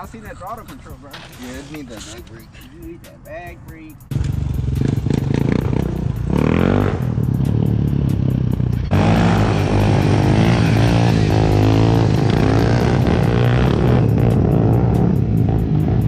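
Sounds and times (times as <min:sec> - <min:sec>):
background music with beat: 0:00.0 - 0:16.0
motorcycle engine revving: 0:04.1 - 0:16.0.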